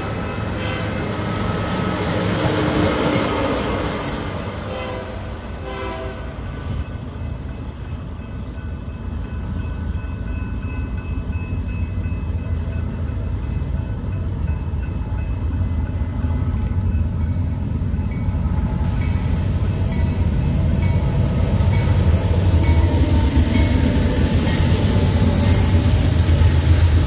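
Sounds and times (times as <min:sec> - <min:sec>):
train rumbling past: 0:00.0 - 0:27.0
train horn: 0:00.6 - 0:01.2, 0:04.6 - 0:06.5.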